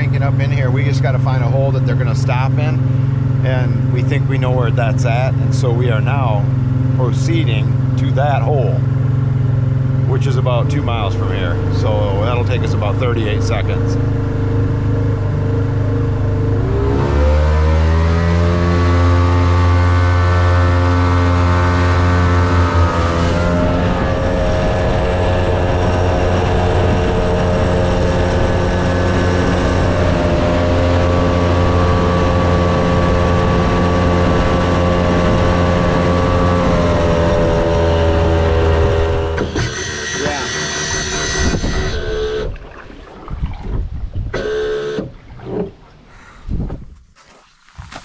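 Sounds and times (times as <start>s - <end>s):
outboard motor throttling up: 0.0s - 46.6s
water spraying from wake: 40.5s - 46.1s.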